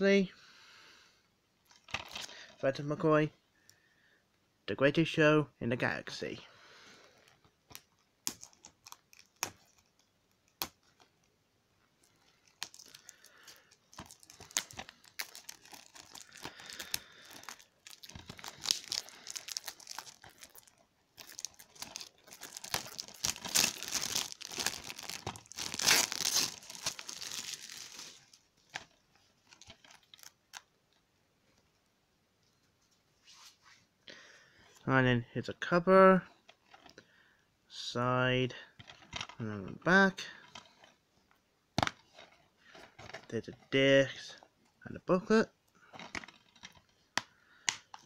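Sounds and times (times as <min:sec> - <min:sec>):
plastic wrap crinkling and tearing: 0:07.3 - 0:11.3, 0:12.0 - 0:30.7.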